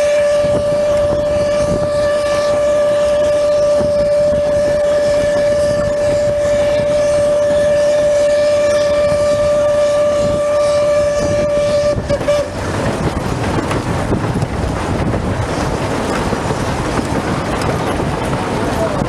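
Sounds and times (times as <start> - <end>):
steam locomotive whistle: 0.0 - 13.1
train coaches rumbling on rails: 0.0 - 19.0.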